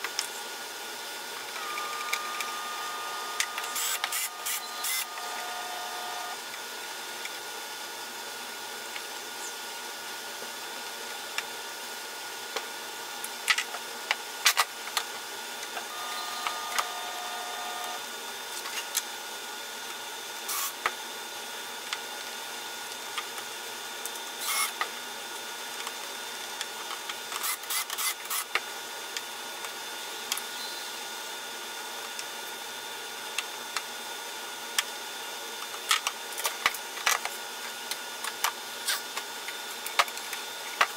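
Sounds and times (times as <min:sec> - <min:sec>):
cordless drill running: 0:01.6 - 0:06.4, 0:15.9 - 0:18.0, 0:27.4 - 0:28.5.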